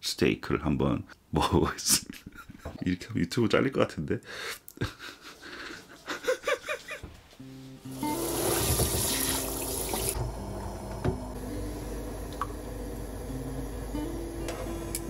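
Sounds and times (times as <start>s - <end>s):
light background music: 7.4s - 11.8s, 12.5s - 15.0s.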